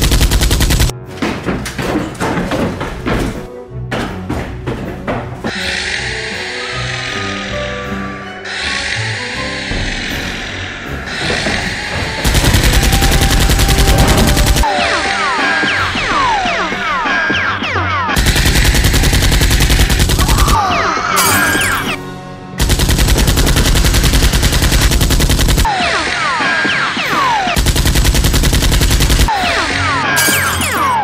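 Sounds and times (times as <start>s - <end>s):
automatic gunfire bursts: 0.0s - 0.9s, 12.2s - 14.7s, 18.2s - 20.6s, 22.6s - 25.7s, 27.6s - 29.3s
background music: 0.0s - 24.8s, 25.6s - 31.0s.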